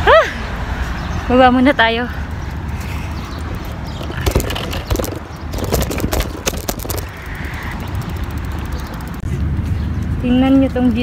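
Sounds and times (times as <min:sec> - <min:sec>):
bicycle rattling and clicking: 0:02.4 - 0:10.2
fast even ticking: 0:03.2 - 0:09.2.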